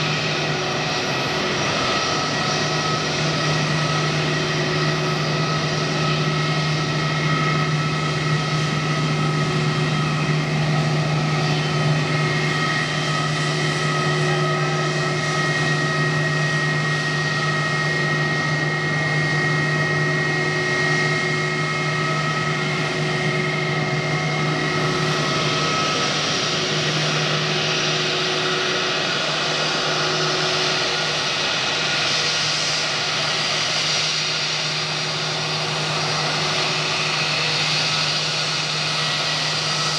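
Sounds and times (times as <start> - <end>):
jet engine rush: 0.0 - 39.9
jet engine whine: 0.0 - 39.9.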